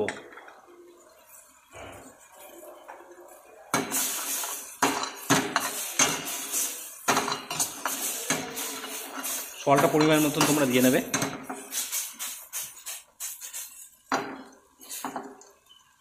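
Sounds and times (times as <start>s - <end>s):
ladle scraping a frying pan: 3.8s - 14.0s.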